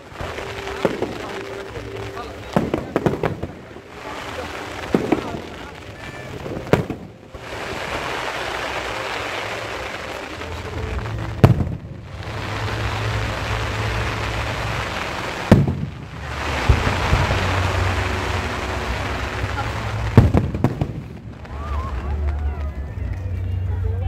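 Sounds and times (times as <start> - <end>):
fireworks bangs: 0.0 - 23.5
rushing noise and low rumble: 0.0 - 24.0.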